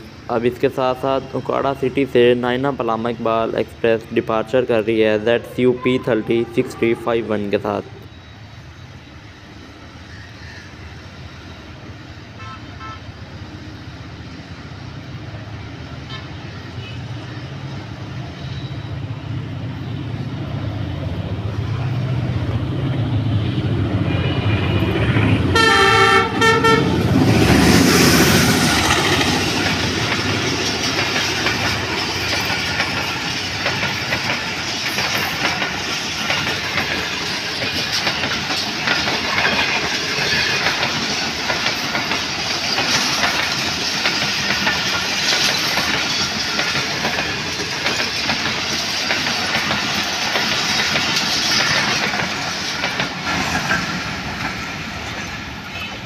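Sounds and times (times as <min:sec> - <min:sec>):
diesel locomotive engine rumble: 0:00.0 - 0:56.0
locomotive horn blast: 0:12.4 - 0:13.1, 0:25.5 - 0:27.1
train wheel clatter: 0:26.4 - 0:56.0.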